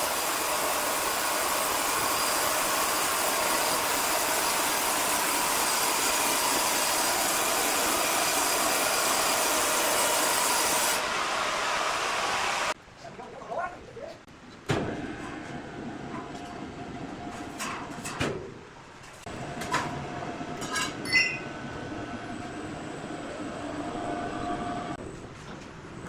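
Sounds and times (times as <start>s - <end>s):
electric crane motor drone: 0.0s - 12.8s, 21.4s - 25.0s.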